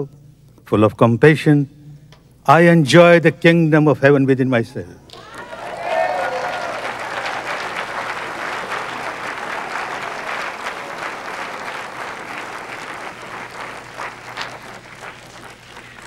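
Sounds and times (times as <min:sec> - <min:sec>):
audience applauding: 0:05.1 - 0:16.0.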